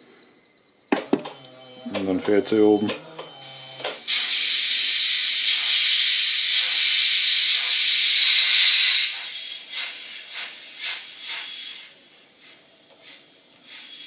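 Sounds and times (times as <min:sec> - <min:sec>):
hiss of escaping steam: 0:04.1 - 0:14.0
slow steam chuffs: 0:04.1 - 0:14.0.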